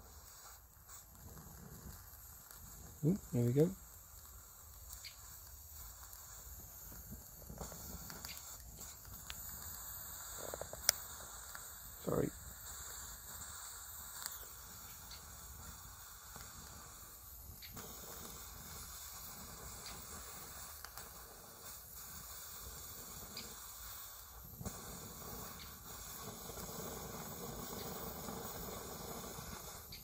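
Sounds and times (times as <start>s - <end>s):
pressure stove hissing: 0.0s - 30.0s
faint ticks: 4.9s - 5.2s.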